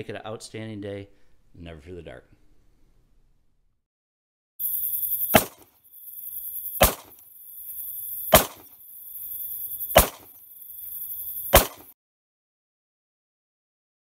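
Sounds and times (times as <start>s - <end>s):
sharp hits with hiss: 4.6s - 5.8s, 6.6s - 8.8s, 9.8s - 10.4s, 11.4s - 11.9s.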